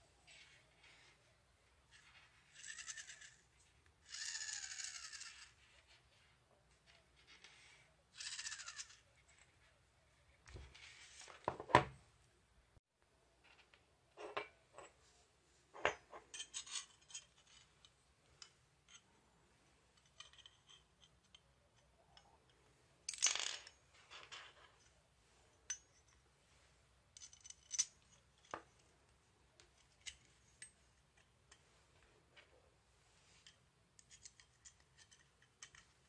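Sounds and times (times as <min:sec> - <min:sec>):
metal parts clicking and clinking: 0:16.1 - 0:19.0, 0:20.0 - 0:21.5, 0:23.1 - 0:24.9, 0:27.1 - 0:28.9, 0:33.4 - 0:36.0.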